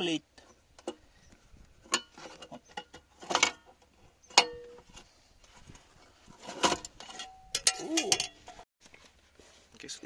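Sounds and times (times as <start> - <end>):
metal plate clanking and rattling: 1.9 - 5.0, 6.4 - 8.6.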